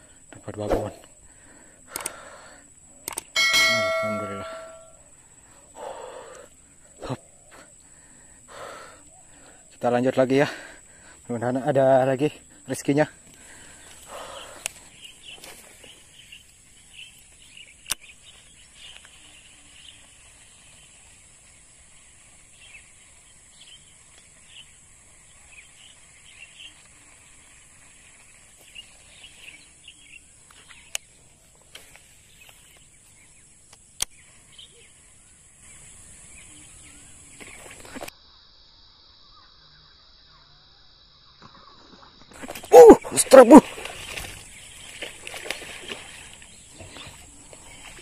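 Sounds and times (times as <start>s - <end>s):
sharp clicks: 1.9s - 2.2s, 3.0s - 3.4s
bird chirps: 3.0s - 5.1s
high-pitched insect drone: 35.6s - 43.6s.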